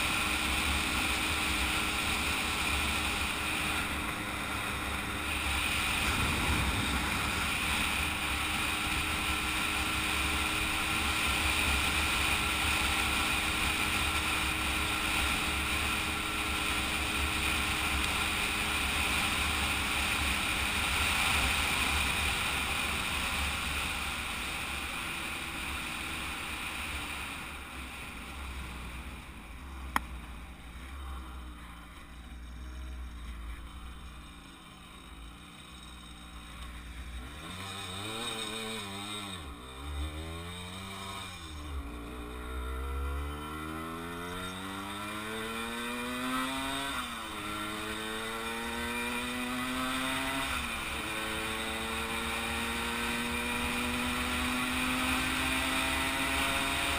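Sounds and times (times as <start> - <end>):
moped engine running: 0.0 - 56.9
wind noise on microphone: 6.0 - 8.2.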